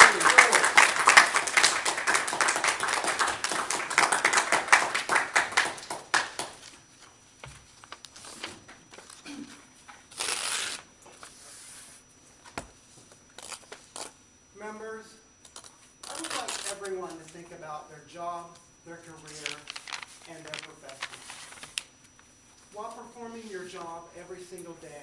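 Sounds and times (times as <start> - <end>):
audience applauding: 0.0 - 6.6
paper rustling: 19.3 - 21.9.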